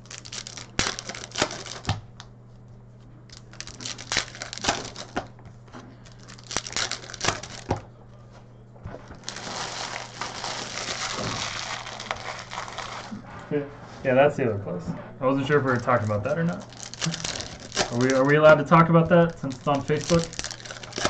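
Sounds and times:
foil wrappers crinkling and tearing: 0.0 - 2.2, 3.3 - 5.3, 6.0 - 7.8, 9.1 - 13.2, 15.4 - 21.0.

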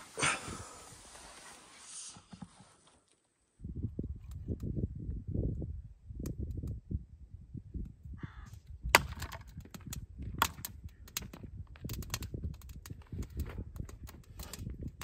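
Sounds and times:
hatchet chopping wood: 8.9 - 12.7.

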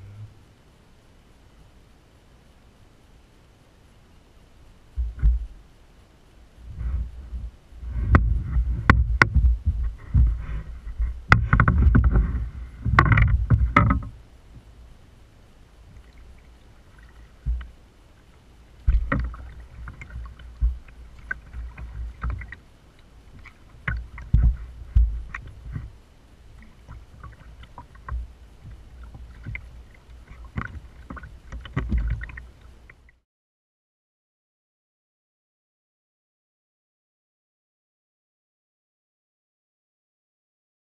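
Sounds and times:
knocks and thumps: 5.0 - 5.6, 6.7 - 14.2, 17.4 - 17.7, 18.9 - 22.6, 23.4 - 26.0, 30.3 - 32.4
paddle strokes splashing water: 6.6 - 14.7, 15.8 - 33.1.

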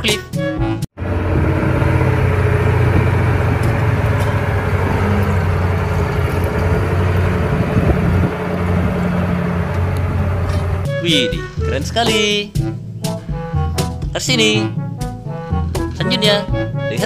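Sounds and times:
diesel engine running under load: 1.0 - 11.8.

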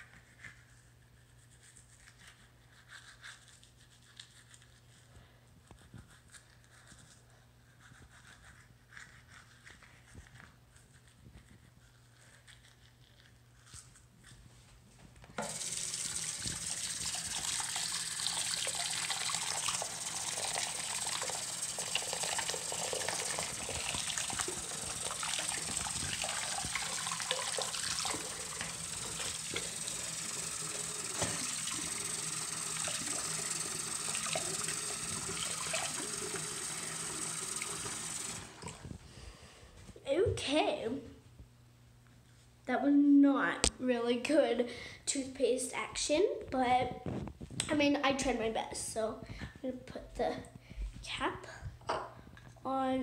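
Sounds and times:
tap water running into sink: 15.4 - 38.8.

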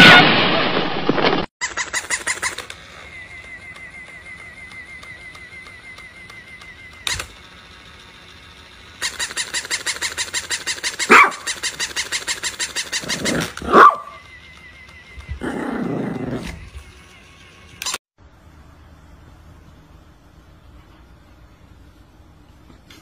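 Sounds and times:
toy mechanism clicking: 1.6 - 18.0
small dog barking: 11.0 - 11.6, 13.2 - 14.2.

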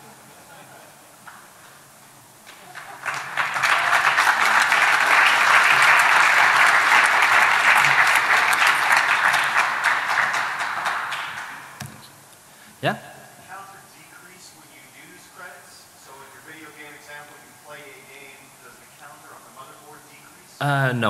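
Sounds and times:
audience applauding: 2.4 - 11.8.

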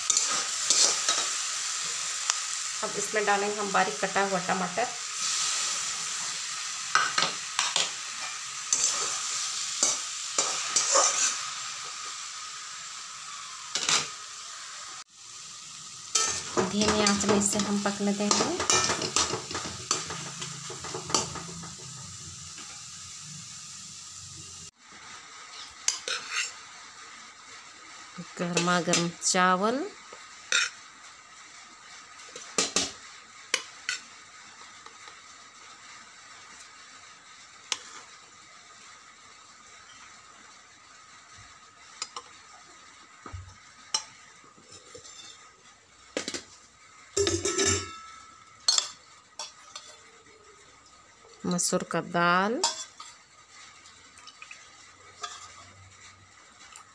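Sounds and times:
spatula stirring in pan: 0.0 - 2.7, 5.1 - 12.2, 16.1 - 22.8, 24.8 - 26.7, 30.2 - 30.9, 37.7 - 38.2, 42.0 - 45.6, 47.2 - 50.6, 52.6 - 56.9
food sizzling in a pan: 0.0 - 56.9
spoon clinking on steel plate: 47.2 - 48.1
metal spoon clinking on steel: 48.7 - 49.9.

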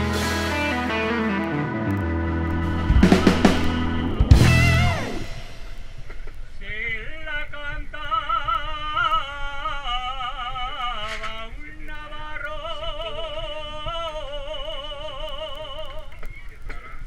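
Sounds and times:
man singing with vibrato: 6.6 - 16.2.

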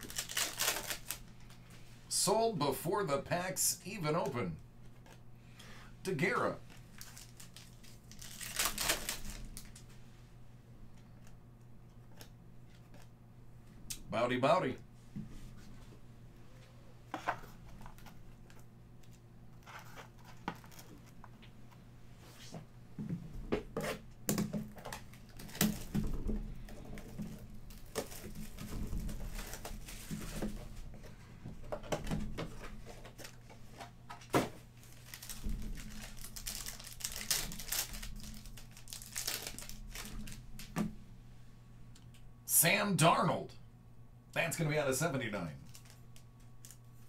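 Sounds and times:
plastic wrapping crinkling and tearing: 0.0 - 1.6, 6.6 - 9.9, 24.7 - 26.0, 26.8 - 30.6, 34.8 - 40.7, 45.6 - 46.9
faint low hum: 0.0 - 47.0.

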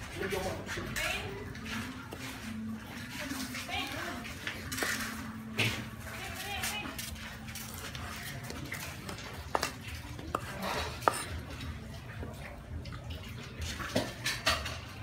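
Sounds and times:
knife scraping wooden board: 7.6 - 11.5
knife chopping on wooden board: 9.5 - 11.4.

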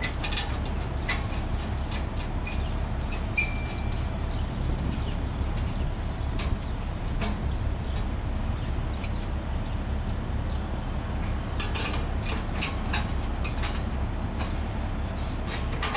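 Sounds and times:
steady low rumble: 0.0 - 15.9
clicks and clinks of hand work: 11.6 - 14.6.

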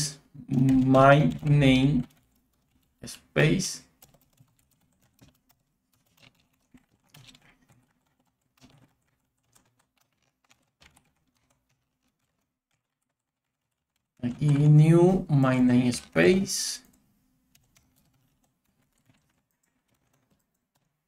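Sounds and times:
faint keyboard keystrokes: 4.0 - 15.3, 16.8 - 21.0.

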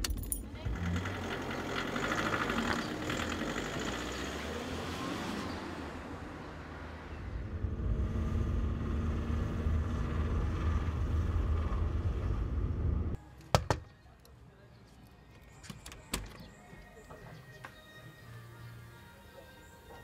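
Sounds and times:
car pulling away: 0.7 - 13.2.

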